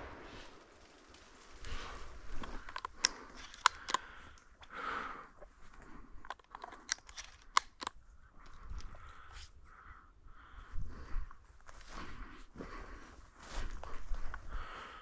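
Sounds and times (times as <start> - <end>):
sharp clicks and crackles: 0.0 - 9.4.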